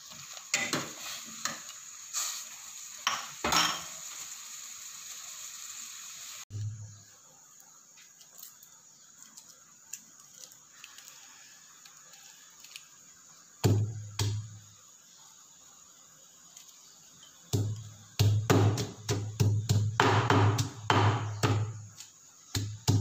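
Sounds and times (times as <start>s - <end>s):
pestle thudding in stone mortar: 17.5s - 21.8s.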